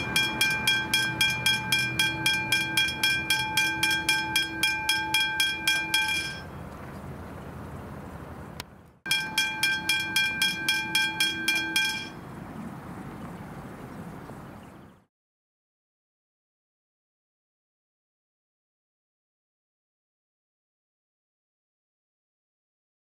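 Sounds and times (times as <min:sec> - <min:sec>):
level crossing bell ringing: 0:00.0 - 0:06.5, 0:09.1 - 0:12.2.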